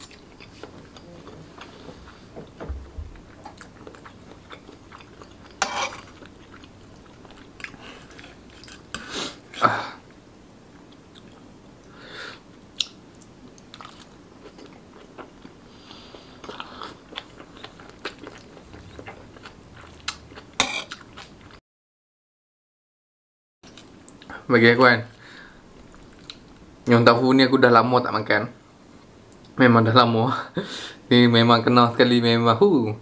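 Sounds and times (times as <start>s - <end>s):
close chewing and biting: 3.1s - 9.6s, 16.3s - 21.6s.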